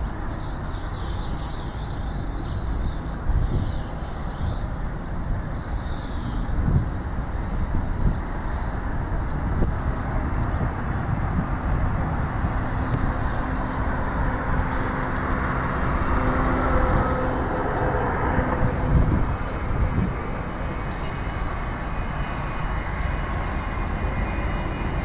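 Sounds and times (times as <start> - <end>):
jet engines roaring: 6.4 - 25.0.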